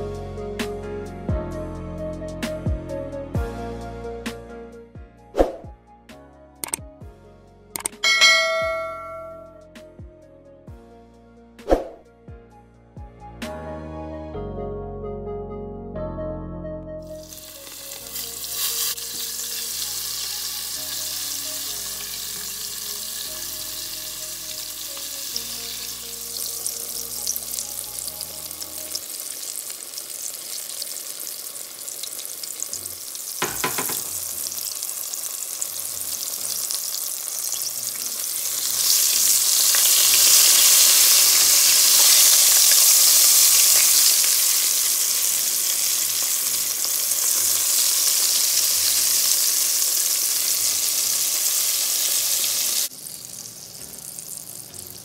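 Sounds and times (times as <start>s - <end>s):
sharp click: 6.6s - 6.8s, 7.8s - 8.0s
food sizzling in hot oil: 17.0s - 55.0s.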